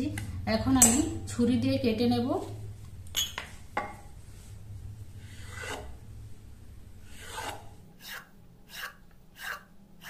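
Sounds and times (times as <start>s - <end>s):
knife cutting dough: 7.1s - 10.0s.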